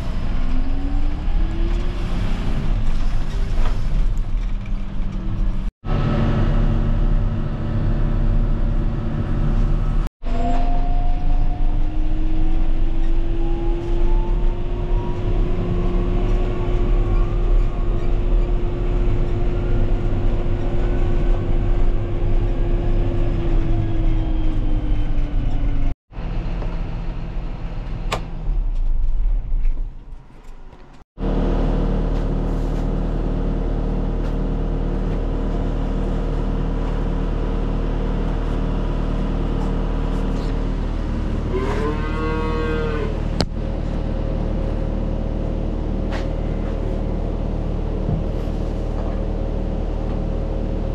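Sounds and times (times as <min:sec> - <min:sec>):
farm machinery engine running: 0:05.4 - 0:10.0.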